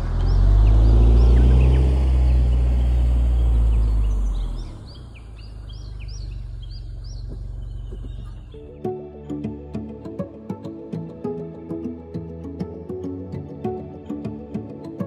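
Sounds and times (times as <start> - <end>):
car exhaust drone: 0.0 - 8.6
bird chirping: 0.0 - 9.6.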